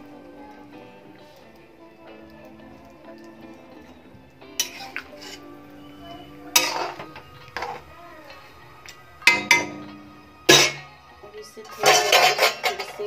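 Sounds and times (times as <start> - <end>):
faint background music: 0.0 - 13.0
metal spatula scraping a pot: 4.6 - 5.6, 6.4 - 11.0, 11.7 - 13.0.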